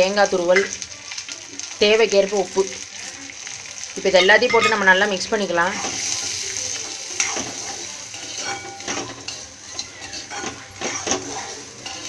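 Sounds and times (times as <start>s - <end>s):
oil sizzling: 0.0s - 12.0s
metal spatula scraping a pan: 4.2s - 6.2s, 6.8s - 12.0s.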